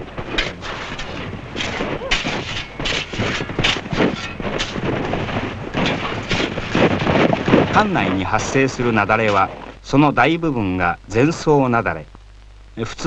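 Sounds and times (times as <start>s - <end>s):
snow crunching scrapes: 0.0s - 10.2s
steady low hum: 0.0s - 13.0s.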